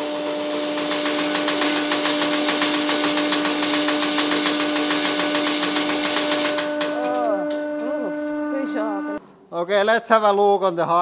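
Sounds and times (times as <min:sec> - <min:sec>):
angle grinder whine: 0:00.0 - 0:09.2.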